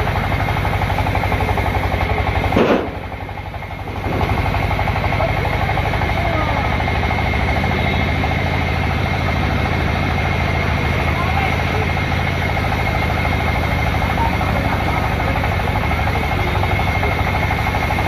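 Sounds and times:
tractor engine idling: 0.0 - 18.0
log dropping with heavy thud: 2.5 - 3.0.

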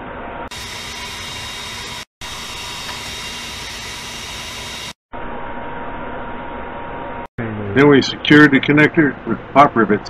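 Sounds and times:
steady noise with faint hum: 5.2 - 10.0.

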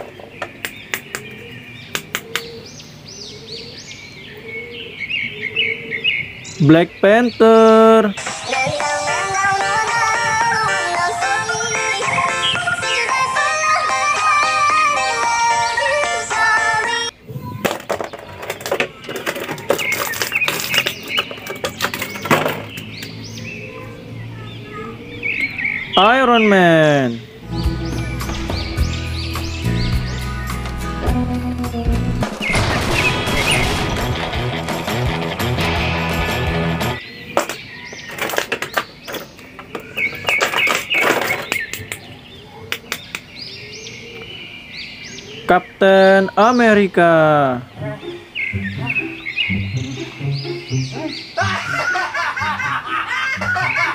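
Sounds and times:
birds chirping: 0.0 - 53.9
music: 8.2 - 17.1, 27.4 - 37.0, 47.8 - 51.8.

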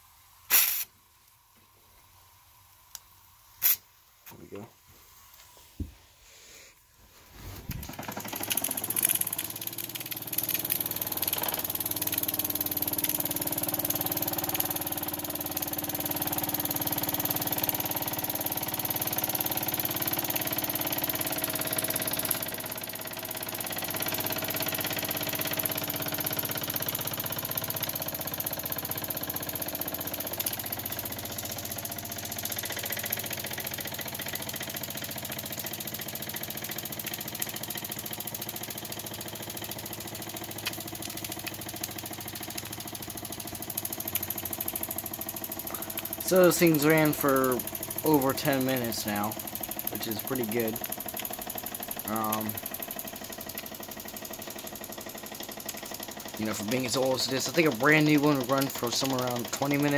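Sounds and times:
hiss of steam: 0.5 - 0.9
toy steam engine chuffing: 7.8 - 59.9.

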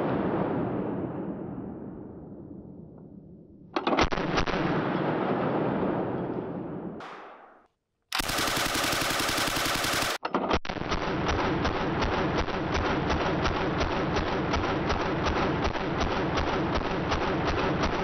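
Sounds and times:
machine gun automatic bursts: 8.1 - 10.2.

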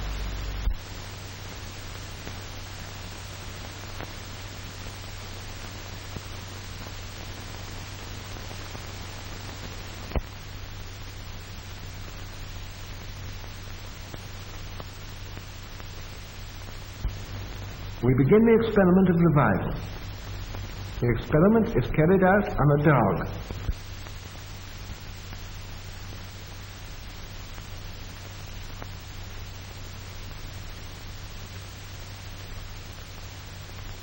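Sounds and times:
film soundtrack hiss and hum: 0.0 - 34.0
faint clicks and pops: 10.0 - 10.4, 23.4 - 24.2.

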